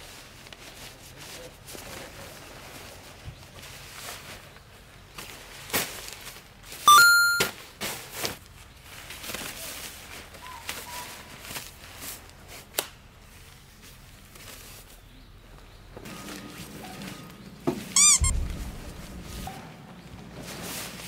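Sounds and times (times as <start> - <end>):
rising electronic beep: 6.9 - 7.5.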